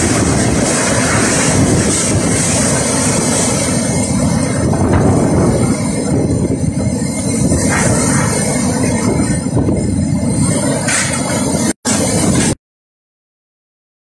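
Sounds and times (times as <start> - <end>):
rain: 0.0 - 7.1
strong wind buffeting microphone: 0.0 - 12.6.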